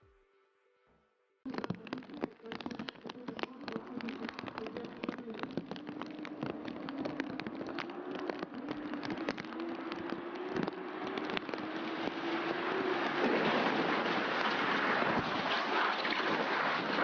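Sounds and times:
crackles and ticks: 1.5s - 17.0s
car engine: 5.9s - 17.0s.

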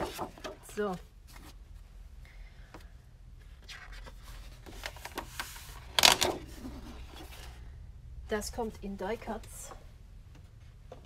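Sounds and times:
paper sheets rustling and sliding: 0.0s - 0.7s, 3.5s - 7.6s.

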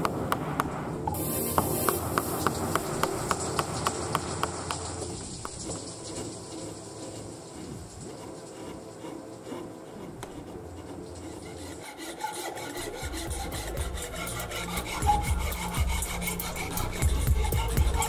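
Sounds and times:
gouge cutting wood: 0.0s - 18.0s
file rasping on wood: 6.6s - 18.0s.

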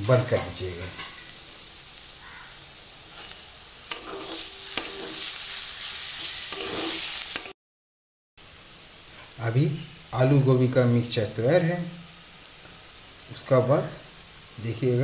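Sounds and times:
frying sizzle: 0.0s - 7.6s, 8.4s - 15.0s
metal spatula scraping pan: 3.2s - 7.5s
spatula clinking against pan: 3.9s - 5.2s.

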